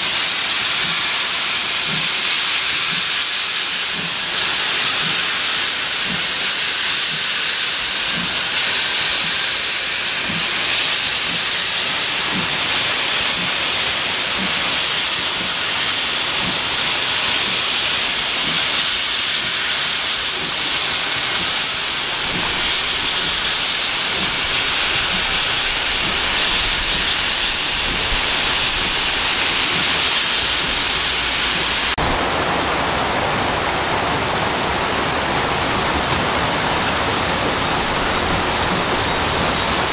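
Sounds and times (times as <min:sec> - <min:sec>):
steam locomotive hissing: 0:00.0 - 0:32.4, 0:33.6 - 0:39.9
stream rushing: 0:03.4 - 0:39.9.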